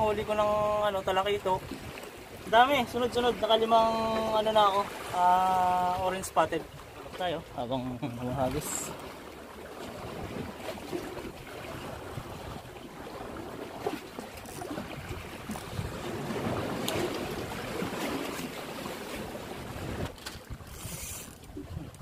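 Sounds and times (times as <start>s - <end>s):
small waves sloshing: 0.0s - 22.0s
wind on microphone: 9.9s - 22.0s.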